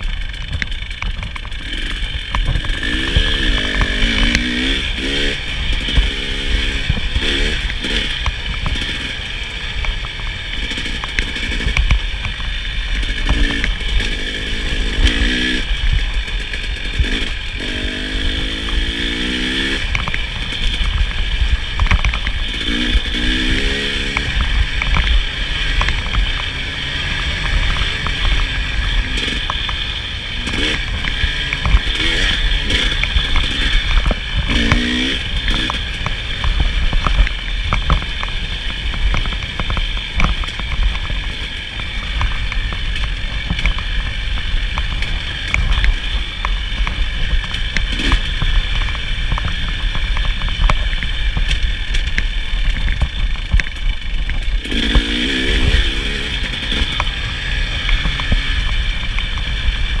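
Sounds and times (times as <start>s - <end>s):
dirt bike engine revving: 0.0s - 60.0s.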